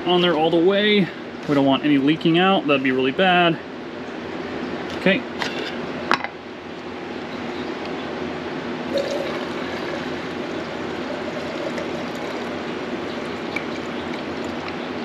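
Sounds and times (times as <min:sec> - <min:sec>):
fans running: 0:00.0 - 0:15.0
paint pouring into a cup: 0:08.9 - 0:14.8.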